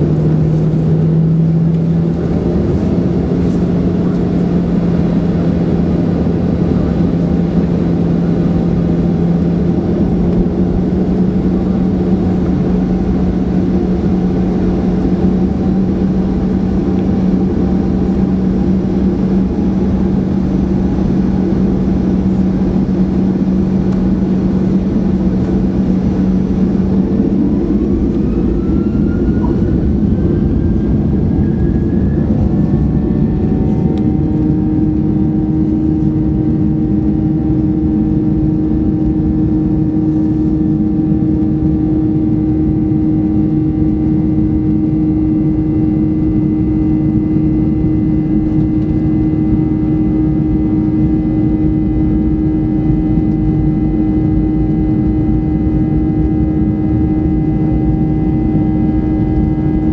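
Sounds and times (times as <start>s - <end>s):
high rising whines: 0.0s - 59.9s
jet engine cabin hum: 0.0s - 59.9s.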